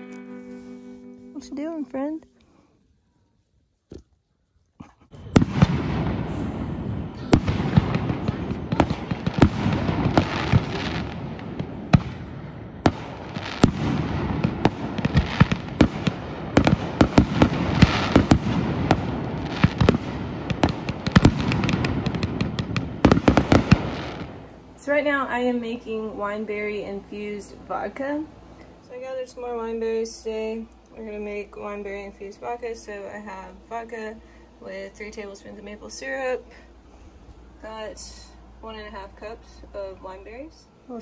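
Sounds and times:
fireworks bangs: 0:05.1 - 0:25.1
fireworks crackling: 0:05.1 - 0:26.7.

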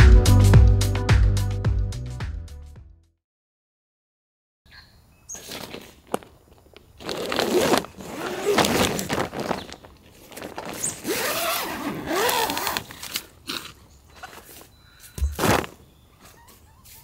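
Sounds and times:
zipper pulled: 0:07.0 - 0:14.4.

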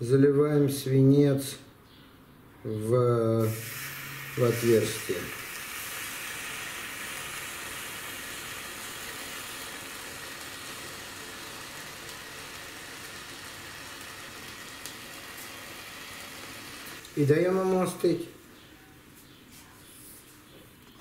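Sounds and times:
molten metal hissing in sand: 0:03.4 - 0:17.0.

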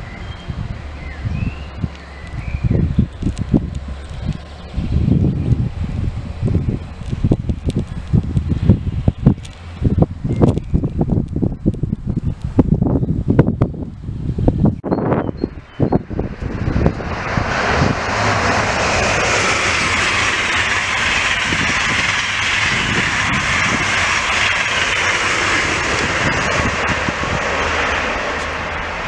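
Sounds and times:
wind buffeting microphone: 0:00.0 - 0:29.0
high-speed train passing: 0:14.6 - 0:29.0.

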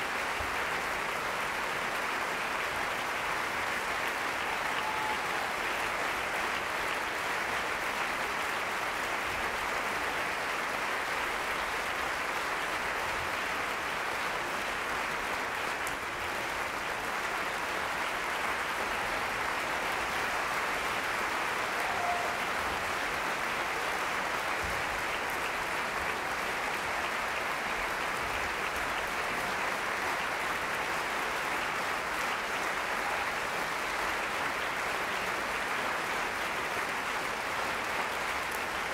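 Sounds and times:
audience applauding: 0:00.0 - 0:38.9.

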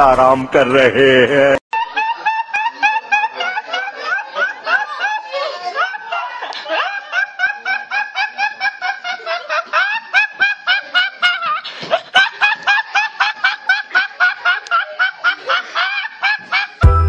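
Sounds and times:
boy laughing uncontrollably: 0:01.7 - 0:16.9.

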